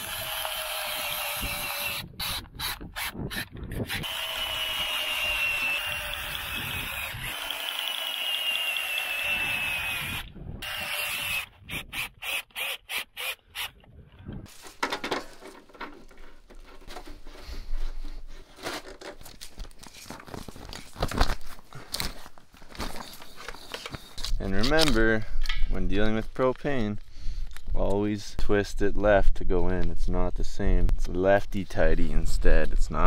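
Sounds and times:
cordless drill whining: 0.0 - 13.9
fitting clicking and rubbing: 22.8 - 25.7.

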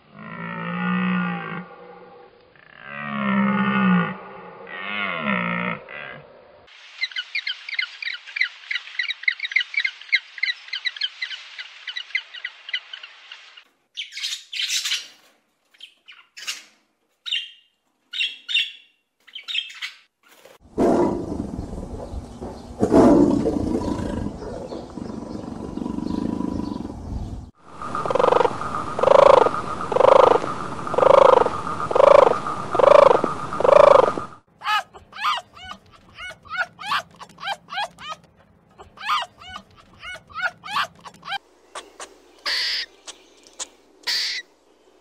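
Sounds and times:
high chirping calls: 17.3 - 20.1, 27.8 - 44.6
tiger growling and roaring: 20.7 - 27.4
steady high hum: 27.6 - 35.1
rhythmic animal calls: 27.8 - 44.5.

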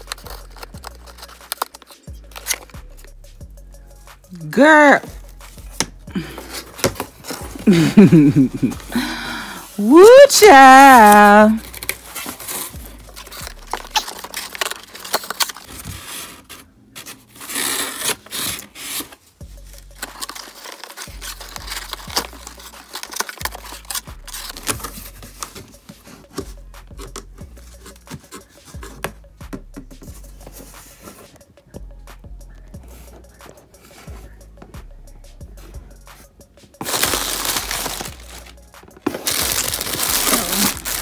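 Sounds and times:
packaging clicks and rustles: 0.0 - 2.8, 5.8 - 9.3, 10.7 - 29.1, 36.8 - 41.0
cardboard scraping and tearing: 10.1 - 19.4, 20.0 - 26.4, 36.8 - 41.0.

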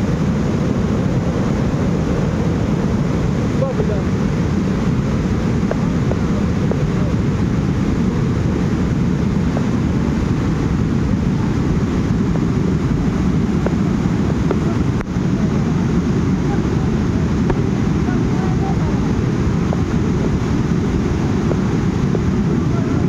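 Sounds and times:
mudflow rushing: 0.0 - 23.0.

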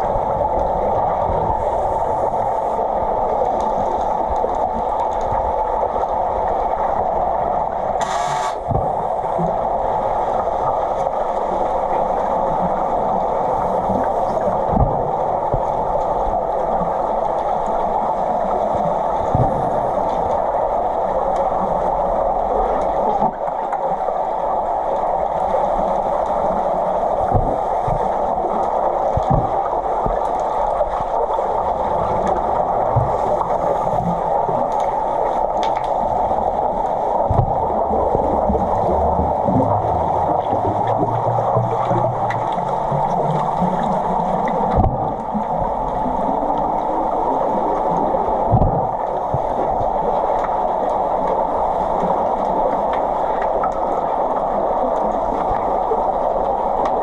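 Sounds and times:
muffled underwater rush: 0.0 - 57.0
low underwater thumps: 29.2 - 30.2, 44.7 - 45.2, 48.5 - 49.5.

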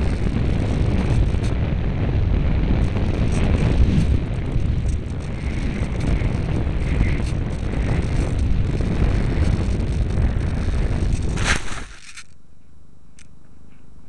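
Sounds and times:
airflow rushing over microphone: 0.0 - 12.1
glider scraping through grass: 11.2 - 12.3.

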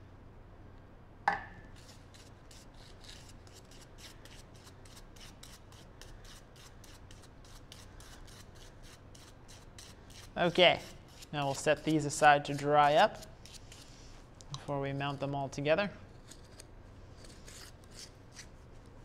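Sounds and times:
brush strokes scratching on foam: 1.8 - 14.3.

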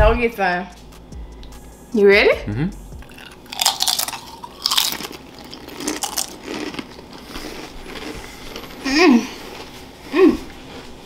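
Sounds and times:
people chewing: 3.0 - 11.0
crisps crunching: 3.1 - 11.0.

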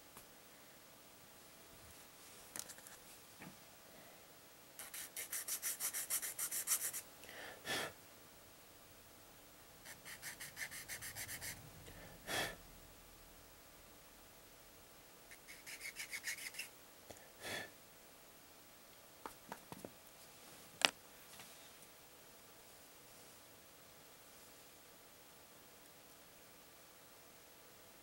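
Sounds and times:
sanding plastic back and forth: 4.8 - 7.1, 9.9 - 11.6, 15.3 - 16.7.

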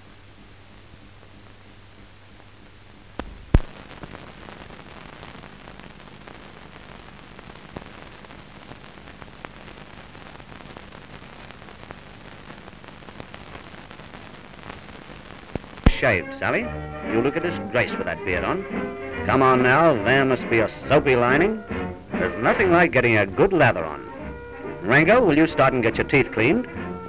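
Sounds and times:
steady hiss with crackles: 0.0 - 27.0
sharp pops: 3.2 - 5.5, 7.6 - 16.1.

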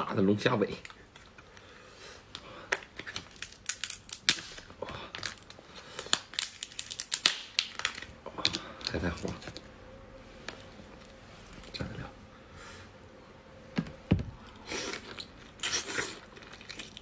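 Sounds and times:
lobster shell cracking: 2.7 - 9.4.

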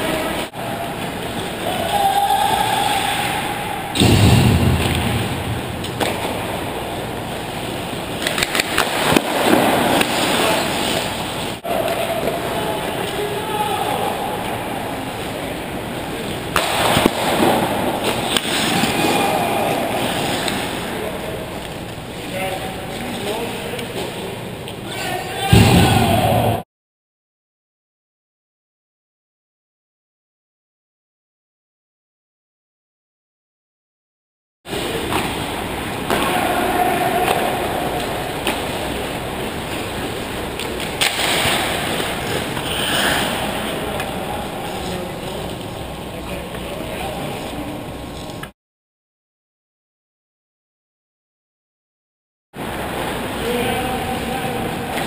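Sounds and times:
arena noise: 0.0 - 26.6, 34.7 - 48.5, 52.6 - 55.0
hockey sticks and puck clacking: 8.0 - 12.4, 16.5 - 20.8, 36.0 - 39.0
hockey stick hitting puck: 8.2 - 10.6, 16.5 - 19.2.

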